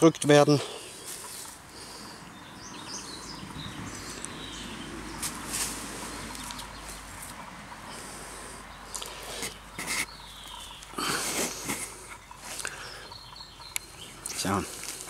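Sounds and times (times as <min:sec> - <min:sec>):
steady outdoor hiss: 0:00.0 - 0:15.0
dry leaves rustling: 0:03.9 - 0:07.6, 0:14.1 - 0:15.0.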